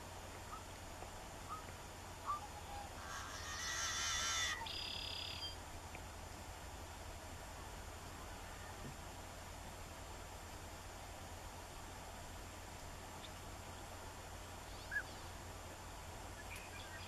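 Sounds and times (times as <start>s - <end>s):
bird chirps: 1.5s - 5.6s, 14.7s - 15.3s, 16.4s - 17.0s
buzzy bird call: 1.5s - 5.6s.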